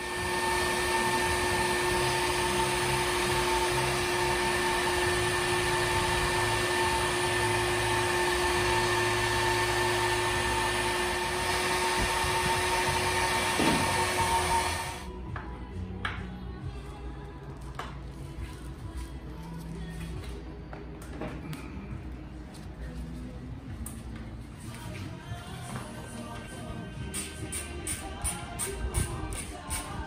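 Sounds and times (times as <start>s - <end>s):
heat gun fan whining: 0.0s - 15.1s, 27.0s - 30.0s.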